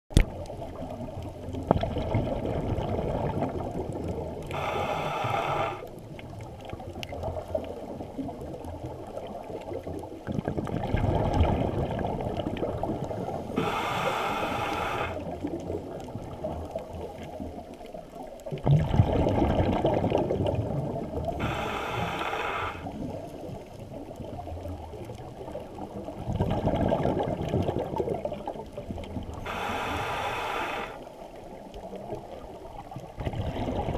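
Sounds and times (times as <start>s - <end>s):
exhaled bubbles rumbling underwater: 0.1s - 33.9s
regulator hissing inhalation: 4.5s - 5.9s, 13.5s - 15.3s, 21.4s - 22.9s, 29.4s - 31.1s.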